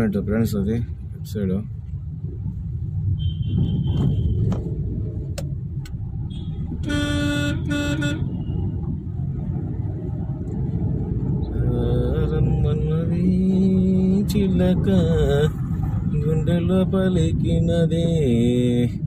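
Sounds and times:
traffic and engine rumble: 0.0s - 19.0s
vehicle horn toots: 3.2s - 4.5s, 6.3s - 8.7s.

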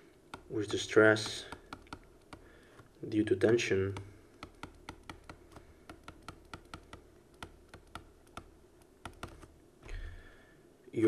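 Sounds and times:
stylus tapping on pen tablet: 0.0s - 3.0s, 3.9s - 9.5s.

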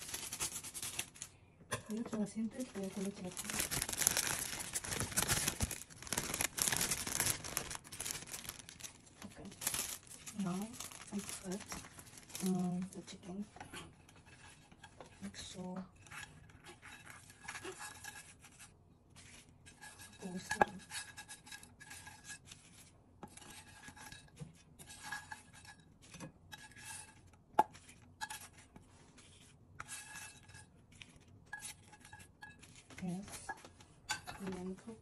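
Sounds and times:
utensil scraping frying pan: 13.5s - 18.7s, 23.2s - 34.4s.

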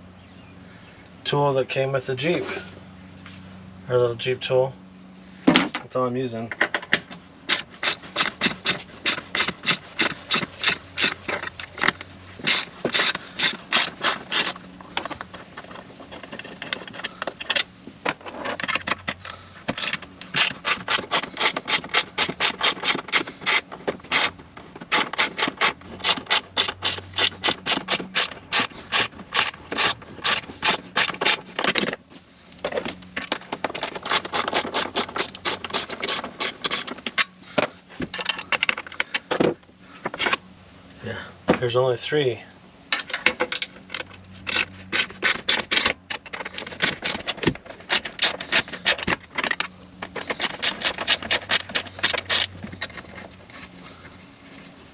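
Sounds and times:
hand tool rasping on fasteners: 7.4s - 32.0s, 32.7s - 39.2s, 43.0s - 53.8s.

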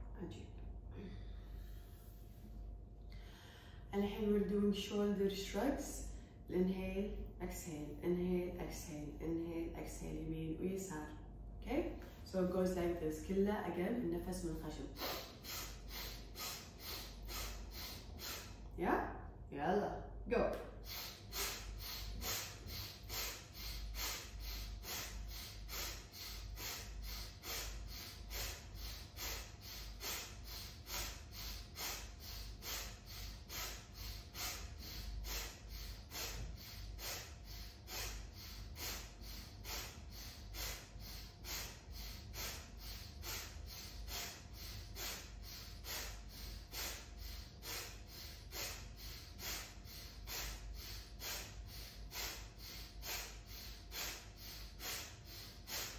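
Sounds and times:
woman breathing through nose: 3.1s - 3.9s, 14.9s - 18.8s, 20.8s - 55.9s.

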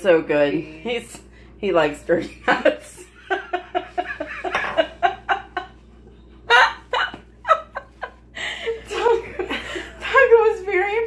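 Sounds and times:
women laughing: 2.2s - 10.2s.

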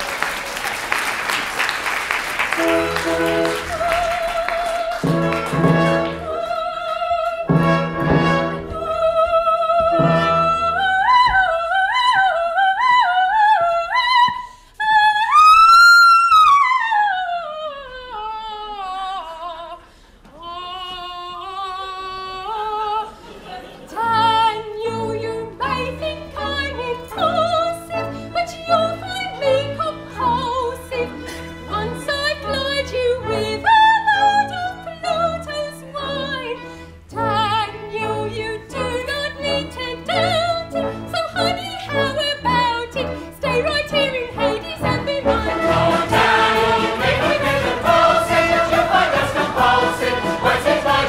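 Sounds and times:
instrumental accompaniment: 2.4s - 12.5s, 24.1s - 51.0s
soprano singing with vibrato: 3.1s - 23.2s, 23.9s - 51.0s.

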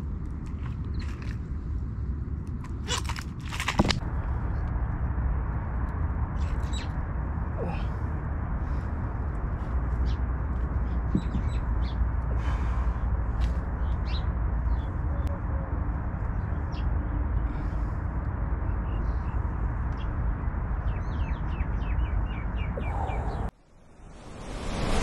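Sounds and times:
low rumble: 0.0s - 25.0s
birds chirping: 10.0s - 23.5s.

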